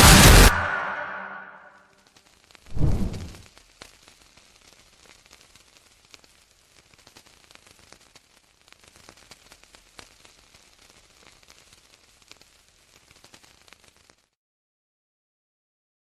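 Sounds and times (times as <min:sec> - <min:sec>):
small crackles and clicks: 0:01.9 - 0:14.4
faint static hiss: 0:03.3 - 0:14.4.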